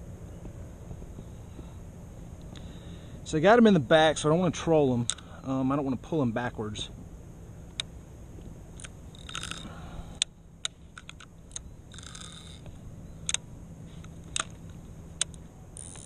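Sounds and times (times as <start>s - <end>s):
fishing reel clicking: 8.8s - 10.3s, 11.0s - 12.7s, 15.2s - 16.0s
short rasps: 9.1s - 10.3s.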